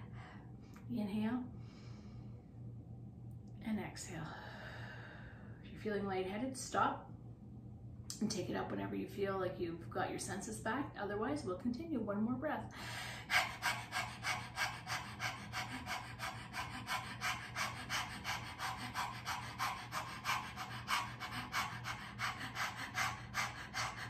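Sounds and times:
woman panting: 0:12.7 - 0:24.0.

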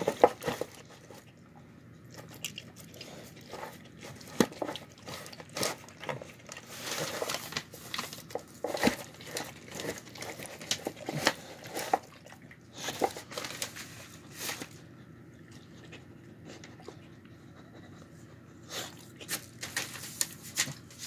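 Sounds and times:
dog licking and chewing: 0:00.2 - 0:06.7
newspaper crinkling: 0:03.4 - 0:12.2, 0:12.8 - 0:14.9, 0:19.2 - 0:21.0.

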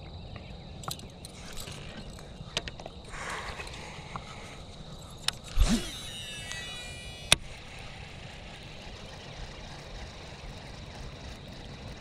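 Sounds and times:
reel spool spinning with whine: 0:00.0 - 0:12.0
fishing reel click: 0:05.3 - 0:08.1
fishing rod swish: 0:05.5 - 0:07.0.

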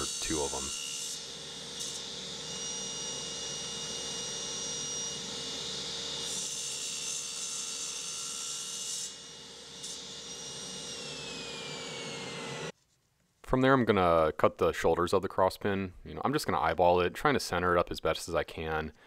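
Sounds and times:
blade cutting wood hiss: 0:00.0 - 0:06.8
table saw whine: 0:00.0 - 0:12.7.

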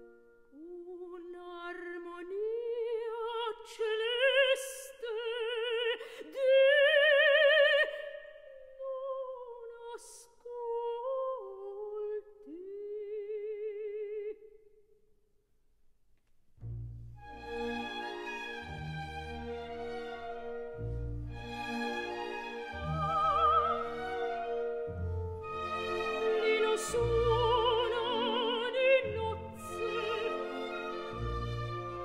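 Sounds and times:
operatic soprano singing: 0:00.5 - 0:14.6, 0:22.8 - 0:24.7, 0:25.8 - 0:31.1.

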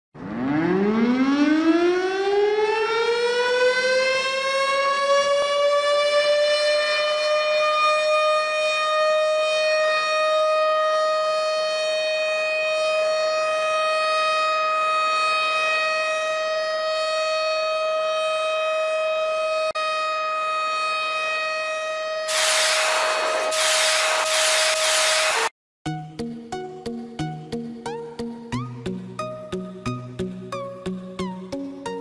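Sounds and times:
air-raid siren wailing: 0:00.2 - 0:25.5.

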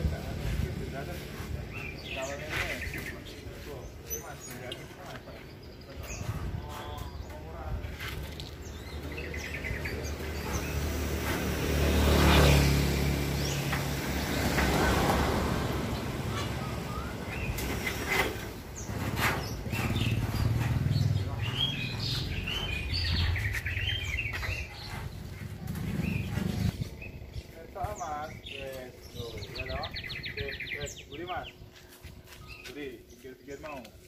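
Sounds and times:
birds chirping: 0:00.0 - 0:34.0
vehicle engine passing: 0:10.0 - 0:17.9, 0:18.8 - 0:26.9.

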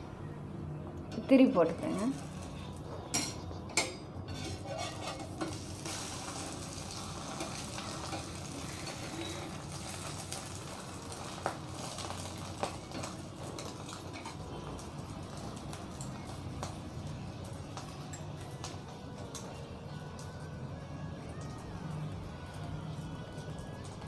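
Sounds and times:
omelette sizzling in oil: 0:01.7 - 0:24.0
spatula clinking and scraping pan: 0:03.0 - 0:06.1.

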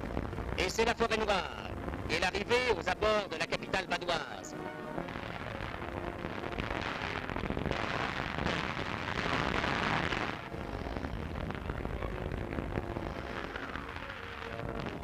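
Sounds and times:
artillery shells exploding: 0:05.0 - 0:15.0.

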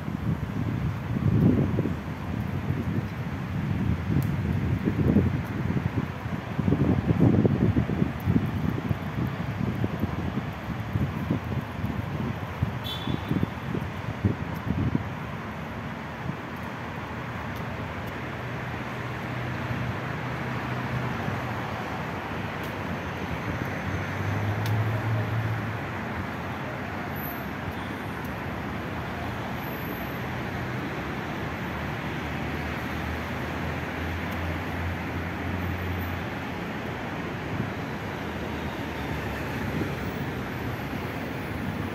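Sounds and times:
road traffic: 0:00.0 - 0:41.9.

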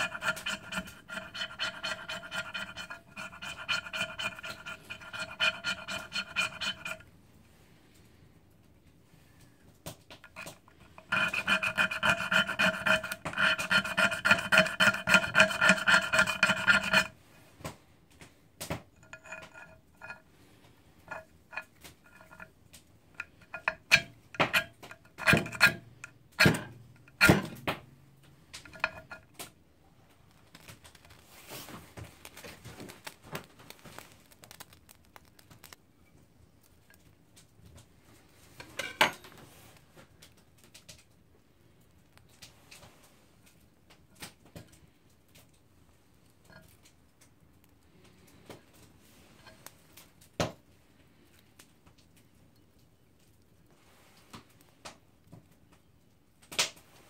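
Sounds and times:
sharp scrapes on ferrocerium rod: 0:00.0 - 0:07.1, 0:10.2 - 0:17.3, 0:18.9 - 0:20.3, 0:21.0 - 0:22.6, 0:23.2 - 0:27.8, 0:28.6 - 0:29.5
striker scraping fire-starter block: 0:00.0 - 0:07.1, 0:10.2 - 0:17.2, 0:18.9 - 0:20.3, 0:21.0 - 0:22.6, 0:23.2 - 0:29.5.

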